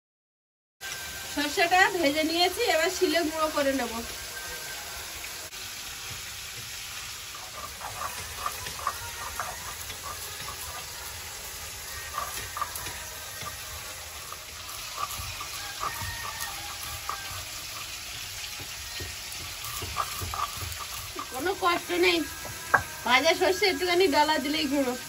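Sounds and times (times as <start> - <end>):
stone roller grinding seeds: 7.3 - 23.6.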